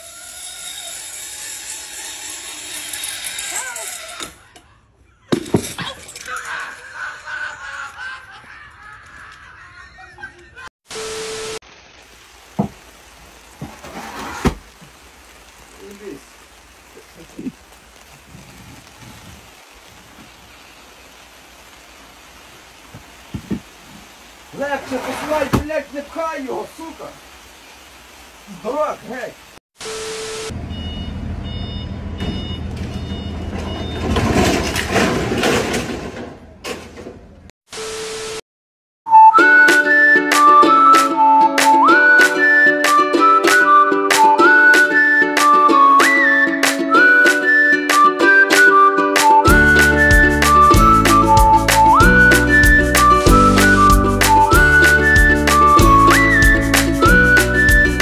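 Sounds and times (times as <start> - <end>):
person laughing in a high voice: 5.8 - 10.7
tv static hiss: 10.9 - 30.6, 37.7 - 38.4
steady beep tone: 29.9 - 33.9
loud metal crash and clatter: 33.9 - 37.0.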